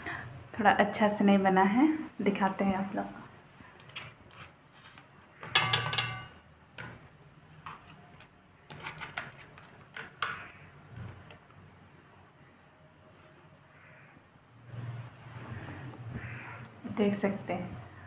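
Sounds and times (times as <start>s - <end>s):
kitchen things clicking and knocking: 5.4s - 7.9s
phone being handled: 7.6s - 10.4s.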